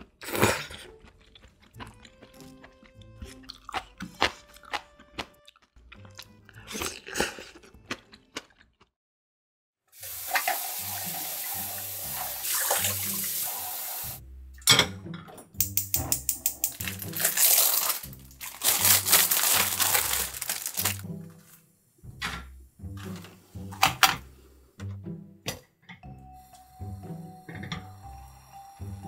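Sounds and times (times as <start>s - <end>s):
person chewing noodles: 0.0s - 9.0s
soft background music: 0.1s - 8.7s, 10.0s - 29.0s
water running: 10.0s - 14.2s, 16.3s - 21.2s.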